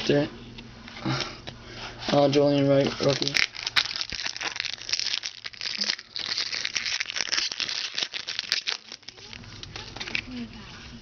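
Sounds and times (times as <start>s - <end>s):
foil wrappers crinkling: 2.1s - 10.5s.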